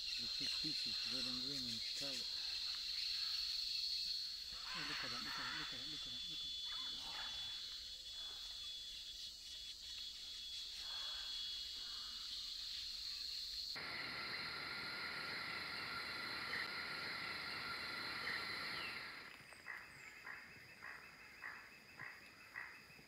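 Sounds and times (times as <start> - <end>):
insects droning: 0.0 - 23.0
short repeated animal calls: 4.6 - 7.6.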